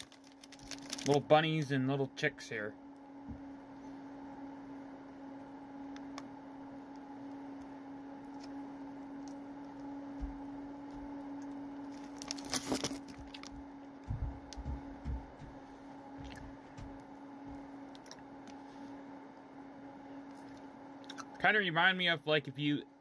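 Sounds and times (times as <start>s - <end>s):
steady electrical hum: 0.0s - 23.0s
low thuds: 14.0s - 15.6s
person chewing gummy candy: 16.2s - 16.5s, 20.4s - 21.3s.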